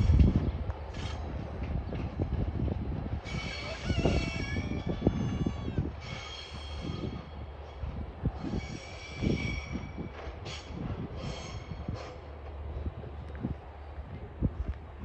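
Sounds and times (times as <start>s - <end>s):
freight wagons rumbling: 0.0s - 15.0s
high-pitched wheel squeals: 3.2s - 7.5s, 8.4s - 12.1s.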